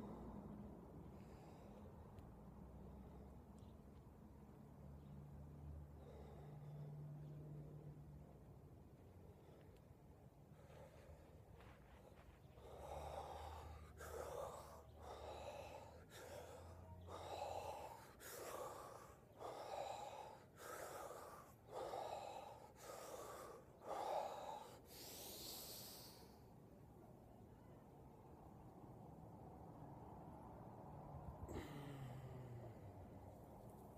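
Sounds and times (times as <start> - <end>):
man breathing hard: 5.8 - 8.2, 10.4 - 26.6, 31.4 - 33.4.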